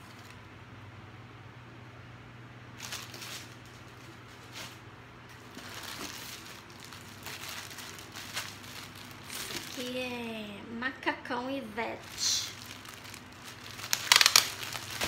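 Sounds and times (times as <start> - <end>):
plastic packaging rustling: 0.0 - 0.4, 2.8 - 10.0, 12.0 - 15.0
clothing rustling: 2.8 - 9.9.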